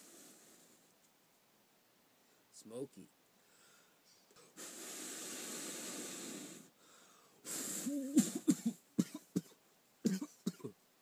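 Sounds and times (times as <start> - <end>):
man blowing into tinder: 4.4 - 6.8, 7.4 - 8.7
man coughing: 7.9 - 10.8.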